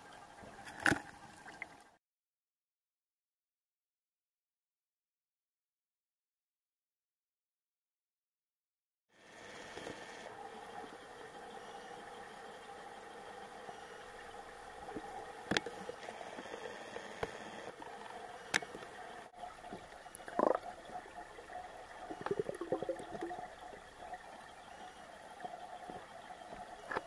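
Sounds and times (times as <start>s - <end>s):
underwater hum: 9.2s - 27.0s
bubbles gurgling: 19.4s - 24.2s.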